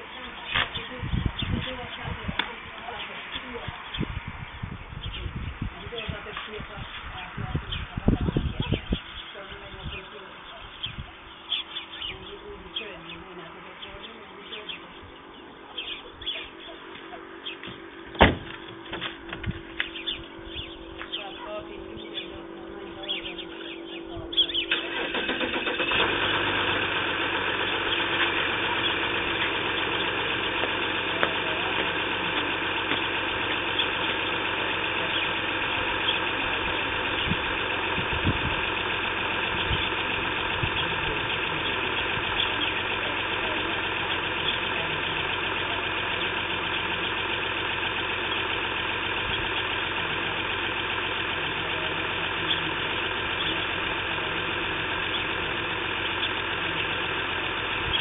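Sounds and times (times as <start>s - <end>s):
car engine idling: 0.0s - 58.0s.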